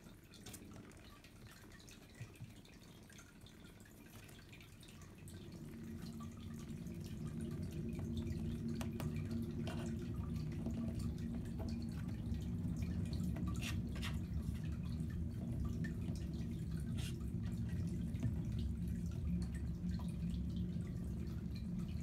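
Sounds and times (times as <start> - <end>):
steady low rumble: 5.2 - 22.0.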